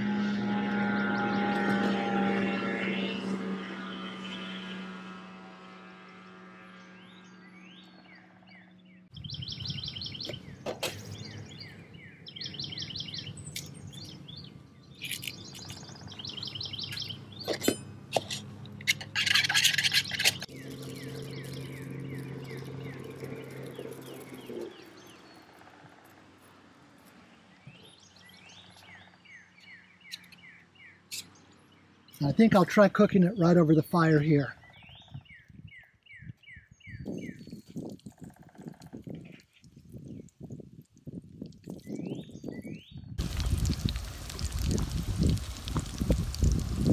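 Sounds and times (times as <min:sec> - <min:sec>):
distant engine drone: 0:00.0 - 0:39.4
birds chirping and singing: 0:06.1 - 0:26.5, 0:27.5 - 0:40.6, 0:41.4 - 0:43.2.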